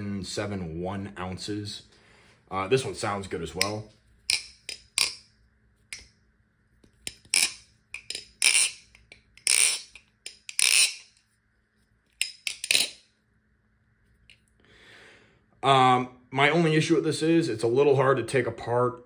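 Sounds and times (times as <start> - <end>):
butterfly knife metallic clacking: 3.6 - 5.2, 7.0 - 11.2, 12.2 - 13.0.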